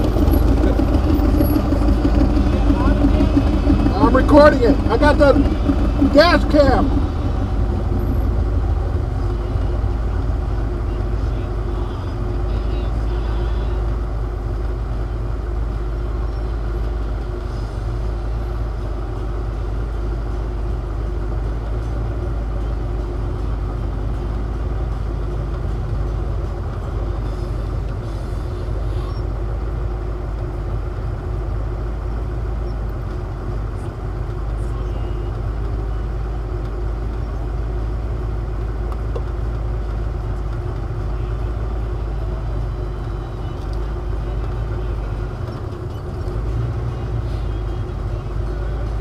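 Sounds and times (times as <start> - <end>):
car engine idling: 0.0 - 49.0.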